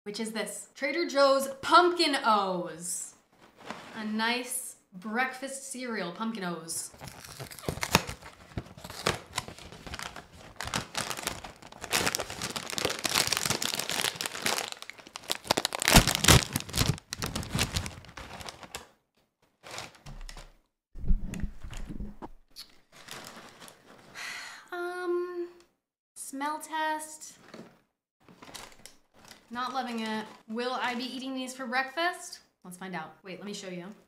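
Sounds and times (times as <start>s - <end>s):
plastic bag crinkling and tearing: 6.9s - 18.9s, 19.6s - 20.4s, 22.8s - 23.9s, 28.4s - 31.2s
cereal box being opened: 7.0s - 18.9s.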